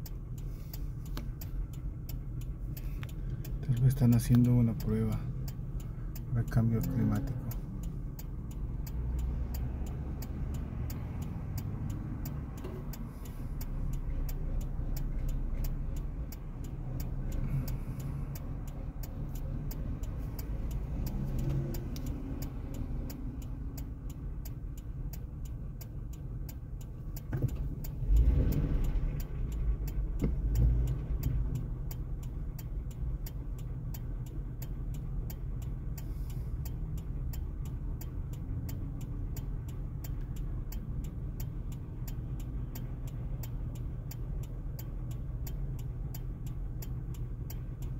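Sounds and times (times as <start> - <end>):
low engine and traffic rumble: 0.0 - 47.9
turn signal clicking: 0.0 - 47.9
vehicle passing close: 6.4 - 24.0.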